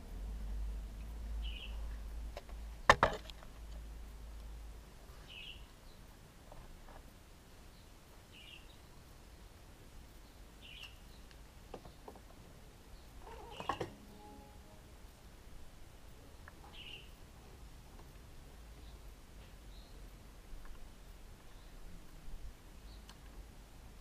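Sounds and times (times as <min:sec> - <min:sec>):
small bird chirping: 0:01.4 - 0:02.0, 0:05.2 - 0:06.1, 0:07.7 - 0:09.5, 0:10.2 - 0:12.1, 0:12.9 - 0:14.0, 0:16.6 - 0:17.2.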